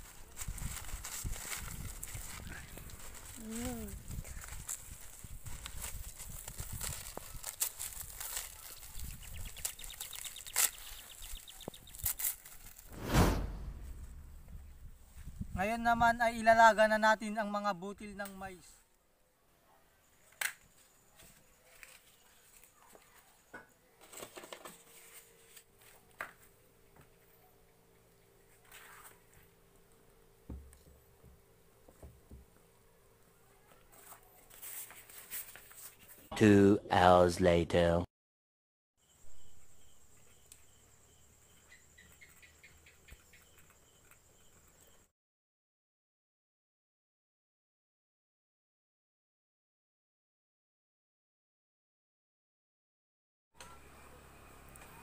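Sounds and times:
insect chirps: 8.3s - 12.8s, 39.0s - 45.1s
crickets trilling: 39.0s - 45.0s.

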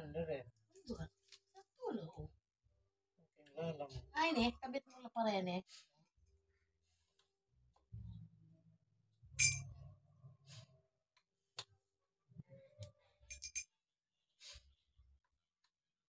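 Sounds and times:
metal tubes clinking and knocking: 9.4s - 9.8s, 13.3s - 13.7s.

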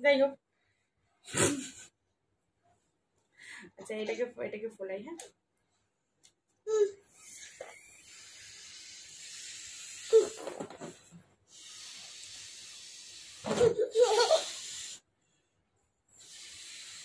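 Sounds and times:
balloon being blown up: 7.2s - 15.0s, 16.2s - 17.0s.

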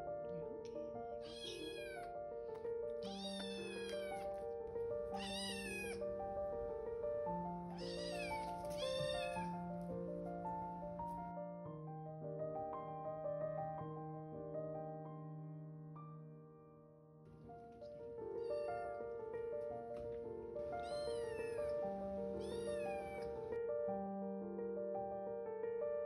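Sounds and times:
soft piano music: 0.0s - 26.0s
cat meowing: 1.2s - 2.2s, 3.0s - 4.5s, 5.1s - 6.1s, 7.7s - 9.6s, 18.3s - 19.0s, 20.7s - 23.5s.

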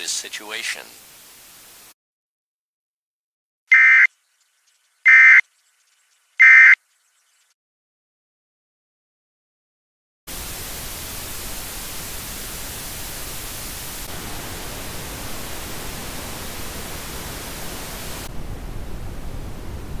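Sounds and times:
radio static hiss: 0.0s - 2.0s, 10.3s - 18.3s.

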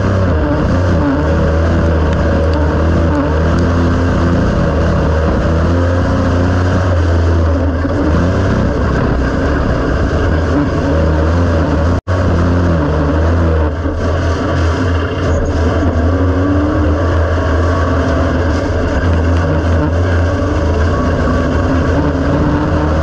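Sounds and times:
race car engine running hard: 0.0s - 23.0s.

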